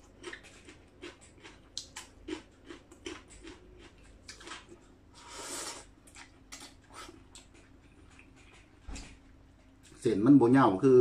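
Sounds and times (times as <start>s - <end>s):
chewing crisp vegetables: 0.0s - 10.1s.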